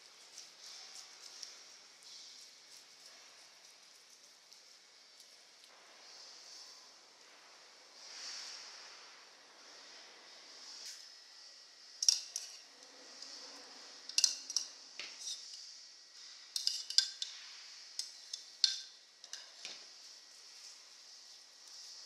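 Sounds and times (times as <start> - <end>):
metal utensils clinking: 12.0 - 12.6, 14.1 - 15.6, 16.5 - 17.4, 18.0 - 19.7.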